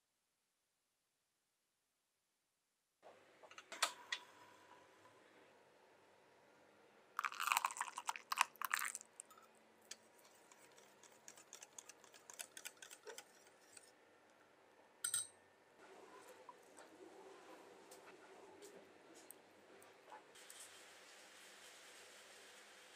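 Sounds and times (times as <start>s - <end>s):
batter pouring: 7.2s - 13.6s
whisk clicking in glass bowl: 10.2s - 13.9s.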